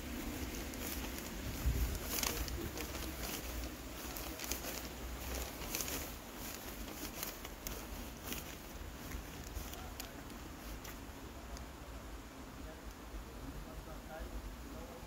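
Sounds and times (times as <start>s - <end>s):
footsteps on stone paving: 0.0s - 11.1s.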